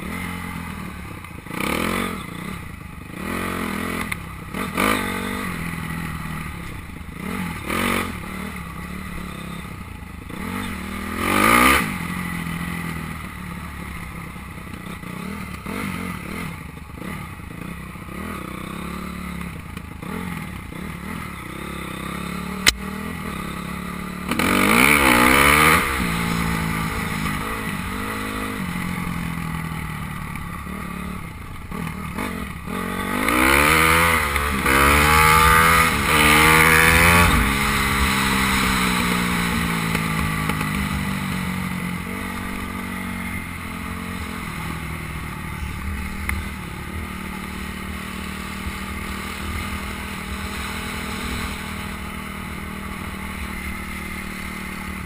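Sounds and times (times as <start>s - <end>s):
motocross bike engine accelerating: 14.7s - 55.0s.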